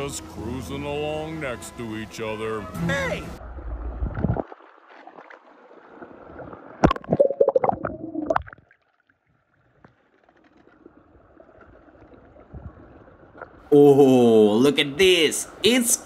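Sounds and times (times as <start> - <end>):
faint wash of water: 3.4 - 13.7
pool water sloshing and gurgling: 3.4 - 13.7.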